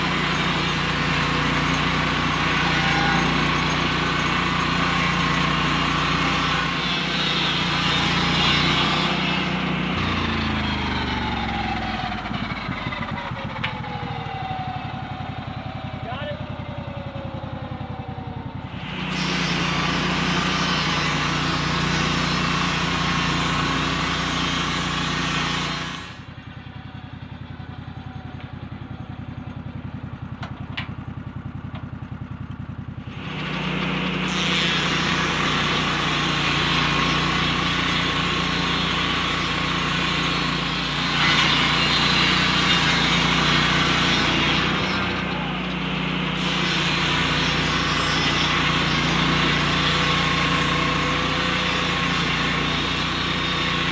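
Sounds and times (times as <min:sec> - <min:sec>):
circular blade cutting log: 0:00.0 - 0:10.8, 0:18.8 - 0:26.2, 0:33.2 - 0:53.9
sawmill engine revving: 0:00.0 - 0:26.8, 0:31.1 - 0:53.9.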